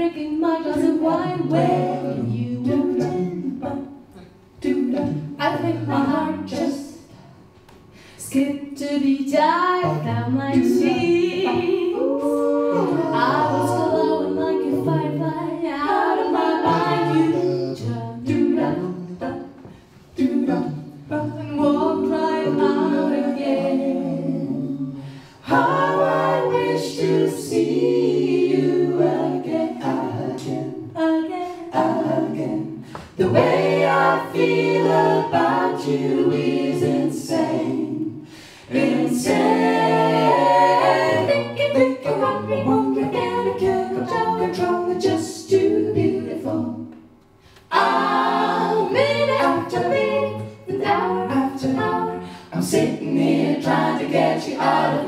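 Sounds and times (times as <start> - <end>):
a cappella group singing in harmony: 0.0 - 55.0
woman singing lead: 8.3 - 16.9.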